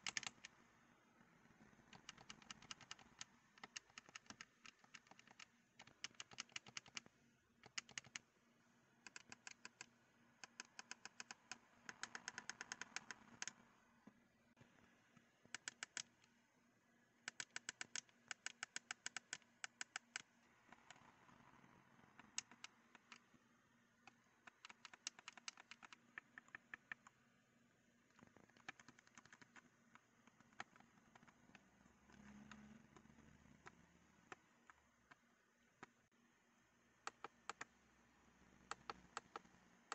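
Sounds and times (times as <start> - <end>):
controller buttons clicking: 0.0 - 0.5, 1.9 - 8.2, 9.0 - 13.6, 15.4 - 16.3, 17.3 - 21.0, 22.1 - 23.2, 24.0 - 27.2, 28.2 - 35.2, 37.1 - 37.7, 38.6 - 39.5.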